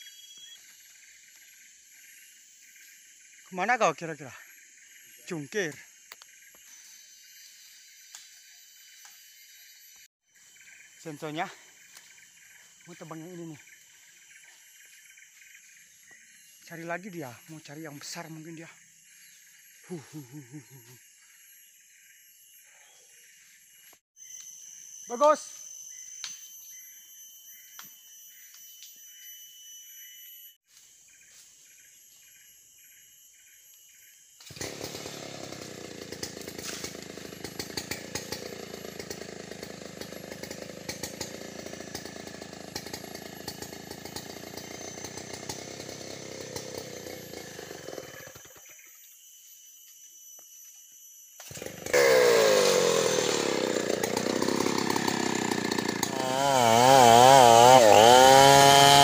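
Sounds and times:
insects chirring: 0.0s - 58.2s
chainsaw revving close by: 34.4s - 48.6s, 51.4s - 59.0s
distant chainsaw running: 34.4s - 48.7s, 51.4s - 59.0s.

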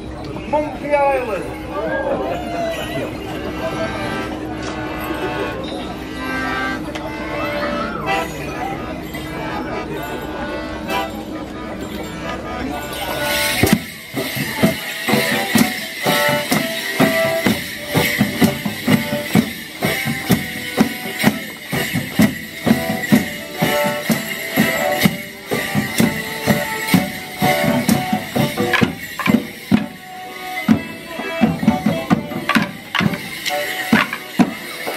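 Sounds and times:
folk dance band playing: 0.0s - 34.9s
driving drum beat: 13.5s - 34.9s.

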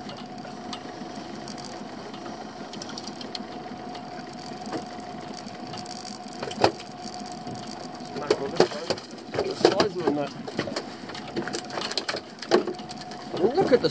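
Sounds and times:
fishing reel whirring: 0.1s - 8.3s.

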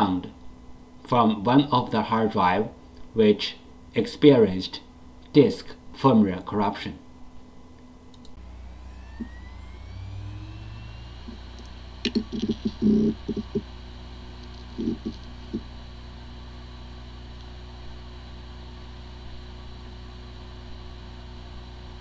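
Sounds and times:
hard drive motor whine: 7.1s - 22.0s
hard drive knocking: 11.2s - 13.8s, 14.5s - 15.8s.

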